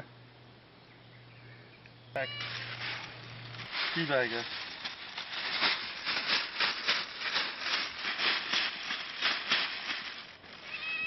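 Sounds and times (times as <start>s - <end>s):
plastic bag crinkling: 2.3s - 11.0s.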